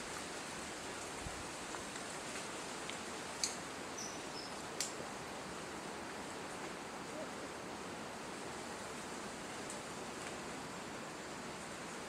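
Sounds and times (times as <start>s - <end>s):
forest hiss: 0.0s - 12.0s.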